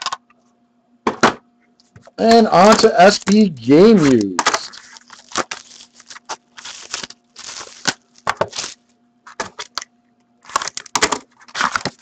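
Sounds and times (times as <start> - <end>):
faint hum: 0.0 - 12.0
shrink-wrap tearing and crinkling: 3.9 - 9.8, 10.4 - 12.0.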